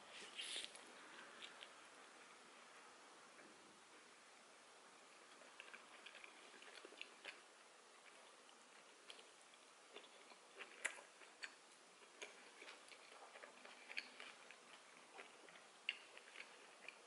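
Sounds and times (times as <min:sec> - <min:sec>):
low hiss: 0:00.0 - 0:17.0
chewing mouth clicks: 0:09.9 - 0:17.0.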